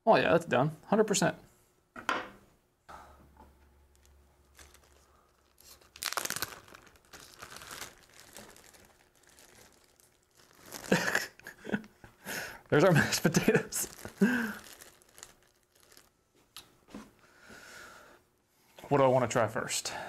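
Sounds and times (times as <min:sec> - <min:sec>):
plastic bag crinkling: 0:03.9 - 0:11.8, 0:12.6 - 0:16.2.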